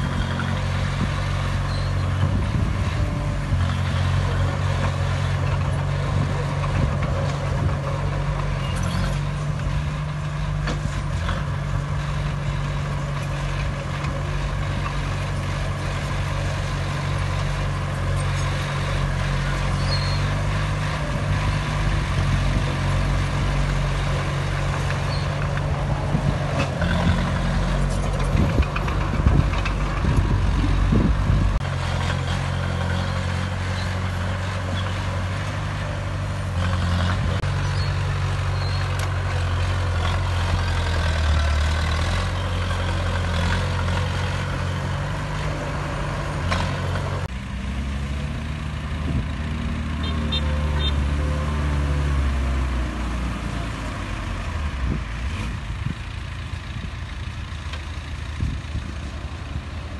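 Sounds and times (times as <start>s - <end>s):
blade pushing dirt and rock: 0.0s - 47.3s
bulldozer diesel engine running: 0.0s - 59.9s.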